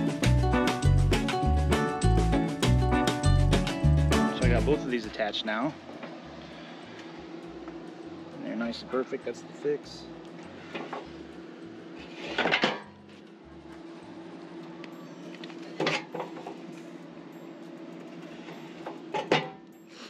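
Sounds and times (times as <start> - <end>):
steady low hum: 2.8 - 19.9.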